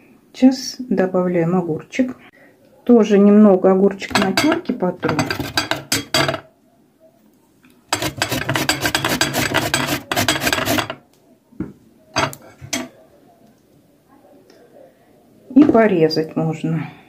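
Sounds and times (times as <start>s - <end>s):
cucumber grated on metal grater: 5.2s - 6.0s, 8.0s - 11.0s.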